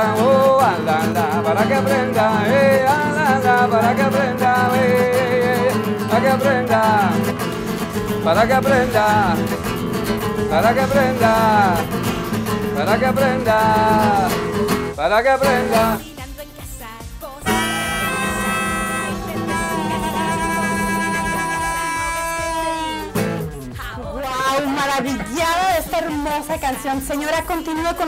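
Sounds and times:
classical guitar strummed: 0:00.0 - 0:16.0, 0:17.4 - 0:23.9
harmonica melody: 0:17.4 - 0:23.8
flute long held notes: 0:17.5 - 0:23.4.

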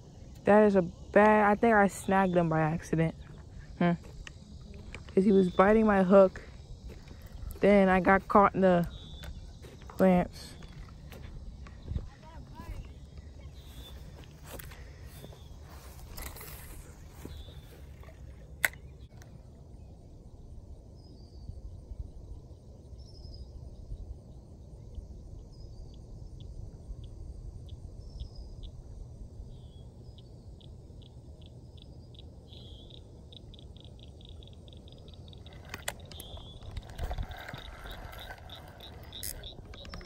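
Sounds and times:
low wind rumble: 0:00.0 - 0:40.0
faint bird chirps: 0:04.4 - 0:18.2, 0:24.8 - 0:40.0
handling rustle: 0:13.6 - 0:18.8, 0:35.4 - 0:40.0.

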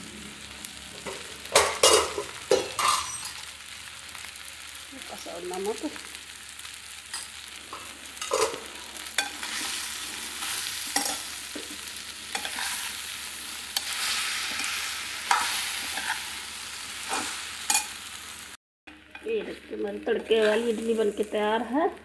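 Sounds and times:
food frying with high sizzle: 0:00.0 - 0:22.0
steel spoon scraping a pan: 0:01.0 - 0:03.5, 0:07.1 - 0:18.1.

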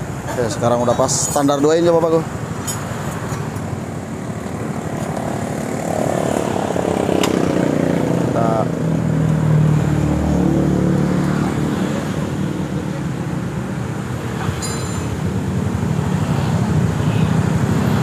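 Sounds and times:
scooter engine revving: 0:04.1 - 0:14.4.

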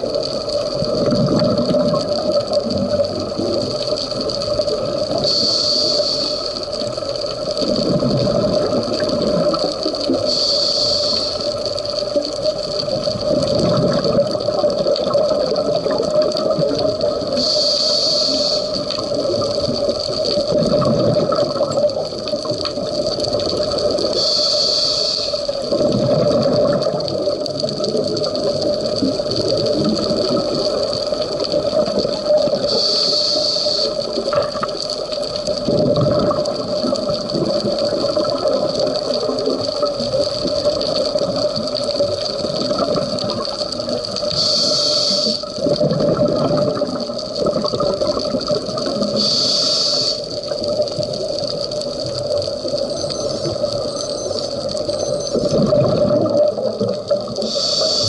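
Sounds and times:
exhaled bubbles underwater: 0:00.0 - 0:58.0
regulator inhale hiss: 0:05.1 - 0:06.8, 0:10.1 - 0:11.9, 0:17.3 - 0:19.0, 0:24.0 - 0:25.6, 0:32.6 - 0:34.2, 0:44.3 - 0:45.6, 0:49.1 - 0:50.5, 0:57.4 - 0:58.0.

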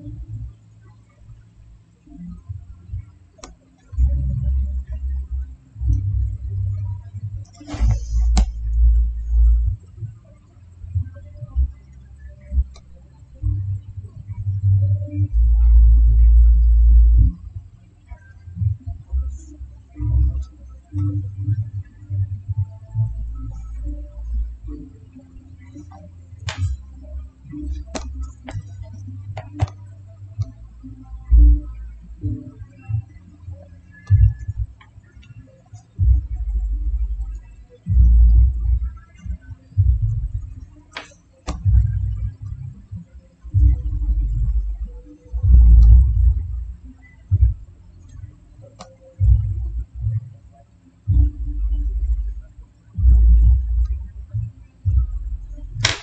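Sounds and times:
low steady hum: 0:00.0 - 0:56.0
sharp click: 0:55.8 - 0:56.0.

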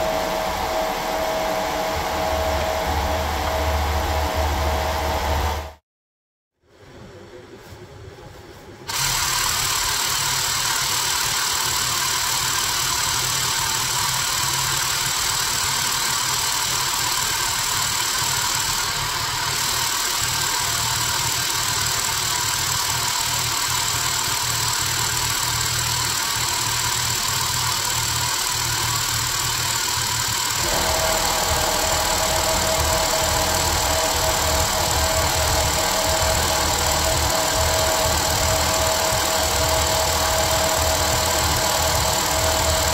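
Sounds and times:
hydraulic pump running: 0:00.0 - 0:05.8, 0:08.9 - 0:42.9
steady hum: 0:00.0 - 0:05.8, 0:15.0 - 0:42.9.

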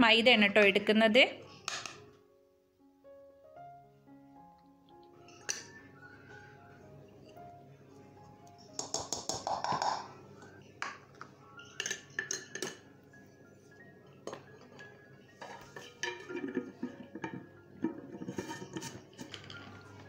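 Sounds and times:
quiet background music: 0:00.0 - 0:20.0
utensils clinking on bowl: 0:08.8 - 0:12.9, 0:14.2 - 0:20.0.

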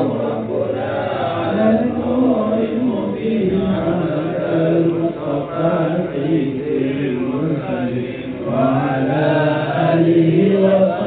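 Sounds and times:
man chanting into a microphone: 0:00.0 - 0:11.0.

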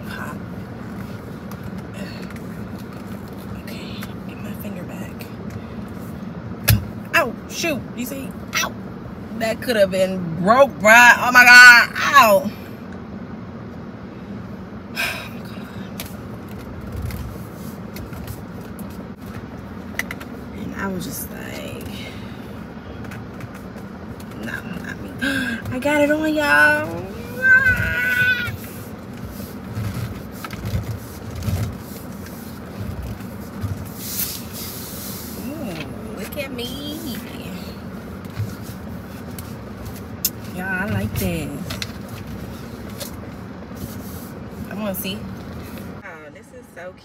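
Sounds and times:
car air conditioning hum: 0:00.0 - 0:47.0
steering wheel cover rustling: 0:00.4 - 0:04.3, 0:15.9 - 0:20.6, 0:21.6 - 0:36.4, 0:37.8 - 0:46.0.

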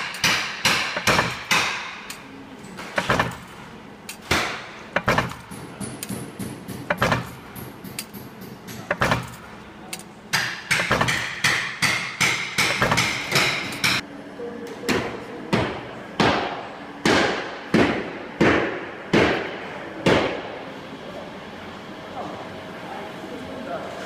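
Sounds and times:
stamping press metallic strikes: 0:00.0 - 0:02.2, 0:02.8 - 0:14.0.

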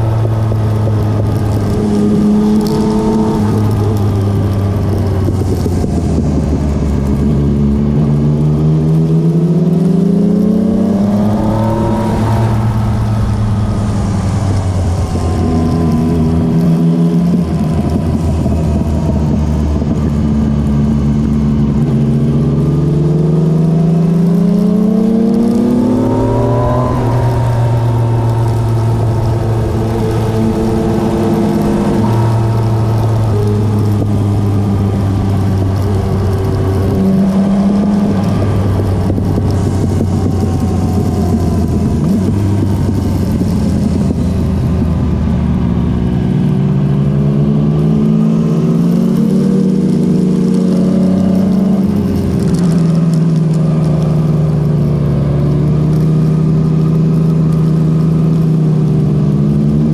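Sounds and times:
motorcycle engine accelerating: 0:00.0 - 0:59.9
wind rushing: 0:10.1 - 0:20.4, 0:24.6 - 0:51.1.

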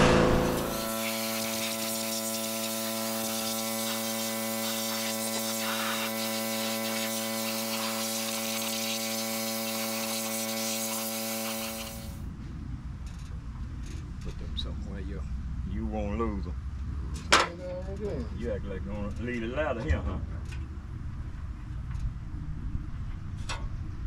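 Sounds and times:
pressure washer motor hum: 0:00.0 - 0:12.2
water jet hissing: 0:00.0 - 0:12.2.

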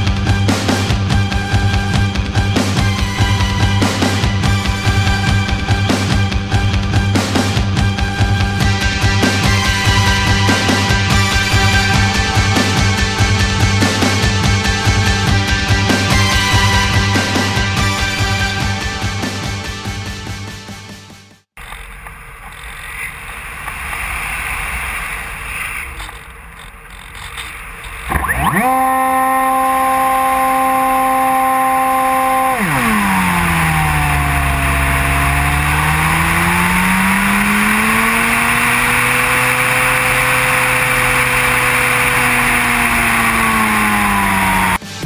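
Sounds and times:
electric propeller motor whine: 0:07.8 - 0:19.2, 0:28.1 - 0:44.9.

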